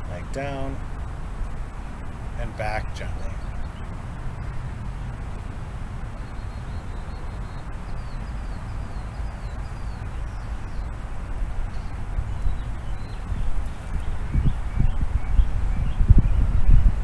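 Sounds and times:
low outdoor rumble: 0.0 - 17.0
bird chirps: 1.4 - 5.4, 6.1 - 17.0.

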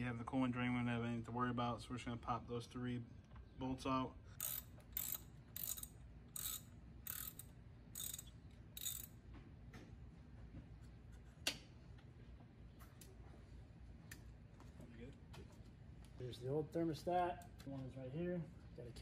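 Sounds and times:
socket ratchet clicking: 4.4 - 9.2.

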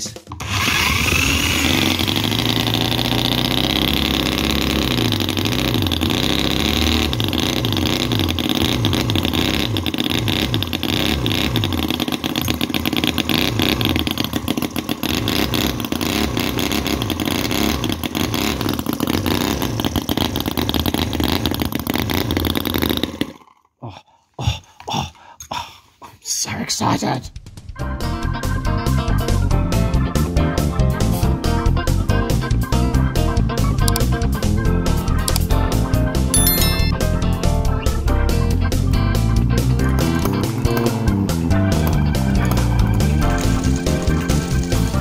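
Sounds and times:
small engine revving: 0.4 - 23.4
electric drill spinning: 0.4 - 23.5.

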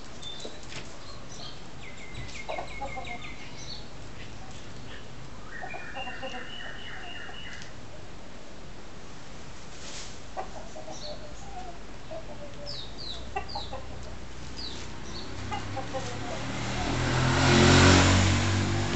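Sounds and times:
rooster clucking: 2.4 - 3.3, 5.5 - 7.7, 10.3 - 14.2, 15.4 - 17.0
engine running: 15.3 - 18.9.

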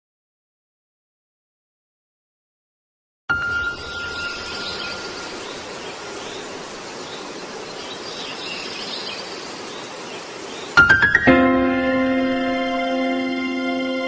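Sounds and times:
faint bird chirps: 3.3 - 10.8
background hiss: 3.4 - 14.0.

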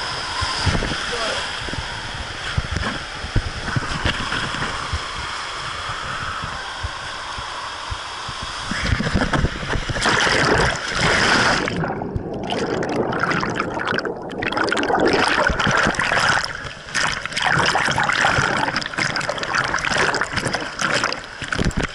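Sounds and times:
water rushing and splashing: 0.0 - 21.9
muffled underwater churning: 8.7 - 21.9.

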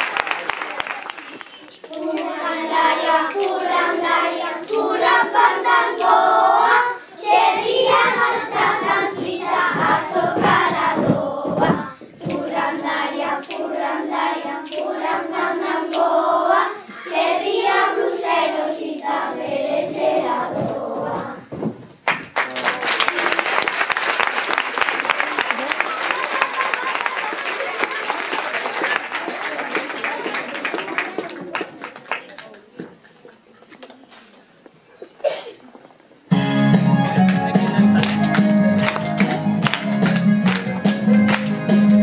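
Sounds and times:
applause: 0.0 - 1.8, 22.0 - 32.8, 37.2 - 41.6
children singing together: 1.8 - 21.5
hand claps: 22.0 - 32.6, 37.0 - 42.0.

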